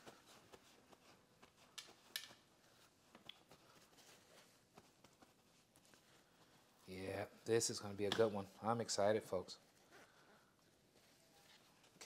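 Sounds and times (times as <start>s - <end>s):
paper towel patting meat: 0.0s - 7.1s
soft crackles and ticks: 3.1s - 3.8s.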